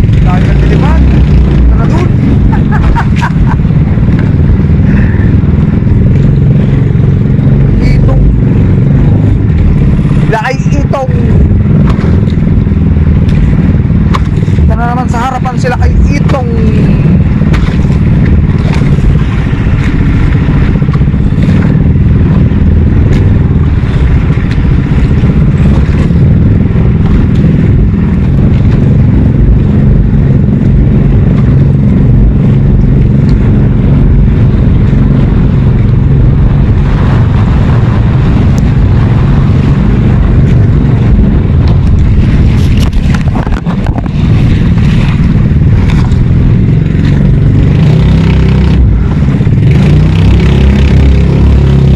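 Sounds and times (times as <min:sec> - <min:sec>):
small engine droning: 0:00.0 - 0:51.9
knocks and clatter: 0:17.4 - 0:20.1, 0:41.6 - 0:46.3.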